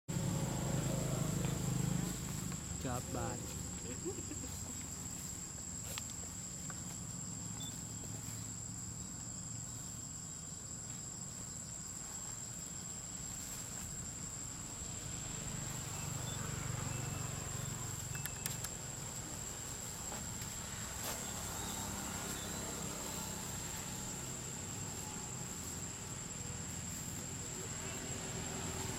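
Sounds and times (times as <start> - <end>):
insect chorus drone: 0.1 - 28.9
faint clicks: 18.0 - 18.8.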